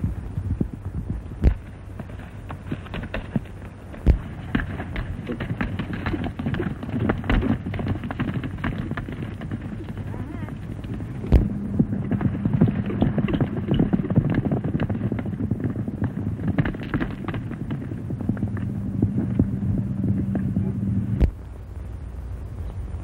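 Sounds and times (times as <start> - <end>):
horses galloping over dirt: 0.0 - 23.0
low hum: 0.0 - 23.0
sharp crack: 1.4 - 15.3.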